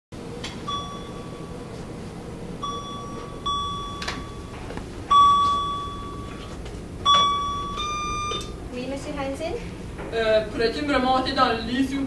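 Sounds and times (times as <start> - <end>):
high electronic beeps: 7.1 - 8.5.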